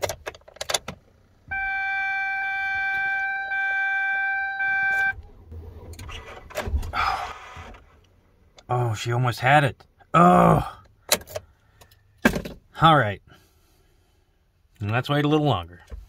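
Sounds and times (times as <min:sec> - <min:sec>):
electronic warning chime: 0:01.5 - 0:05.2.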